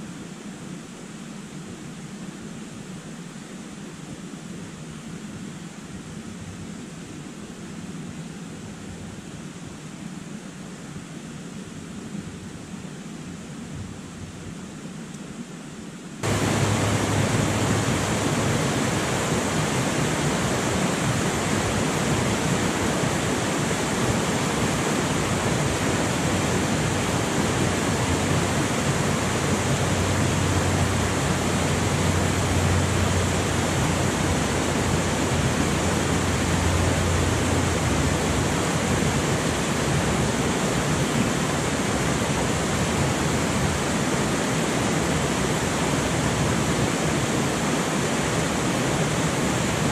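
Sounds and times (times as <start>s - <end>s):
river rapids rushing over rocks: 16.2s - 49.9s.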